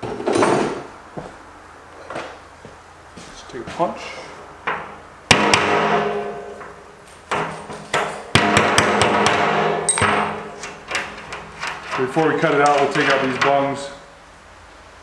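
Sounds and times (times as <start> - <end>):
hammer striking metal punch: 4.7 - 10.7
hollow metal drum ringing: 5.3 - 6.8, 8.3 - 10.6.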